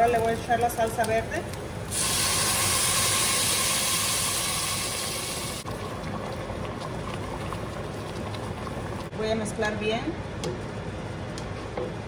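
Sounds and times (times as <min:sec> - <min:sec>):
salsa sizzling in hot pot: 0:00.0 - 0:09.1.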